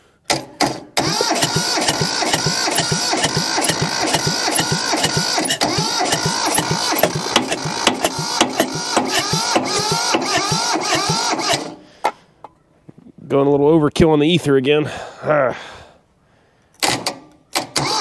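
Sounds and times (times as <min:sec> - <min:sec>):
diesel engine cranking: 0:00.3 - 0:12.2, 0:16.8 - 0:18.0.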